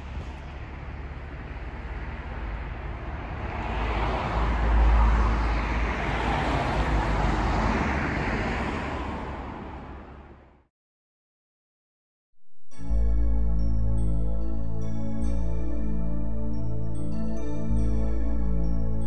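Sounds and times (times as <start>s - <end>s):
steady low rumble: 0.0s - 10.5s
car passing by: 0.0s - 10.7s.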